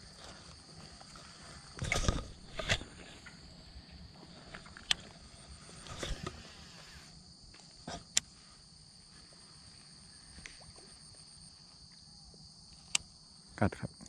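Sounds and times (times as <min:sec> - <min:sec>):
insects chirring: 0:00.0 - 0:14.0
brief rustle: 0:01.8 - 0:03.4, 0:04.4 - 0:07.1.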